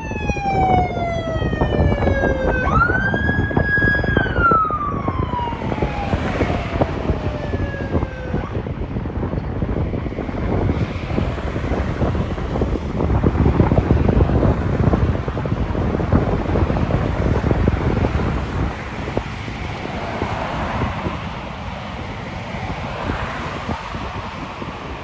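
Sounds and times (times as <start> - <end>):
road traffic: 0.0 - 25.0
wind buffeting microphone: 0.0 - 25.0
car passing close: 4.8 - 8.7, 10.0 - 25.0.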